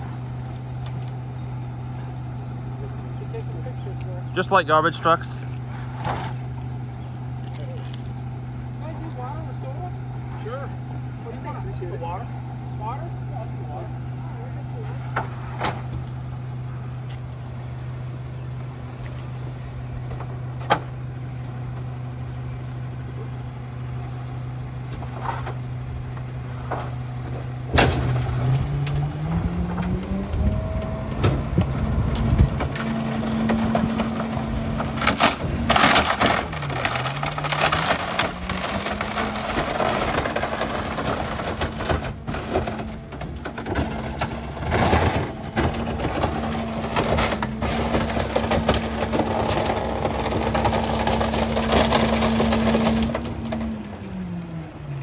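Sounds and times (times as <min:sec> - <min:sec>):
garbage truck engine: 0:00.0 - 0:55.0
wood boards cracking and snapping: 0:32.2 - 0:53.8.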